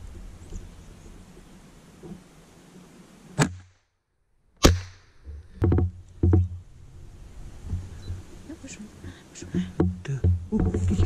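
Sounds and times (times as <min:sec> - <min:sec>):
sharp knocks: 0:04.6 - 0:06.6, 0:09.6 - 0:11.0.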